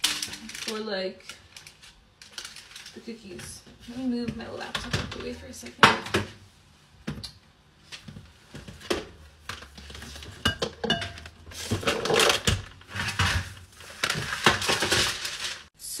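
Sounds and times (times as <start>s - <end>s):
dishes and utensils clinking: 10.2s - 12.4s
scraping and rustling: 11.2s - 15.7s.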